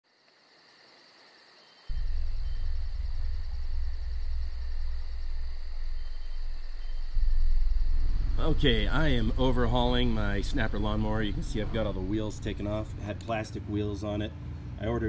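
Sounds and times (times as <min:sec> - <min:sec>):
faint hiss: 0:00.1 - 0:15.0
high repeating chirping pulse: 0:01.9 - 0:13.2
deep low rumble: 0:01.9 - 0:13.6.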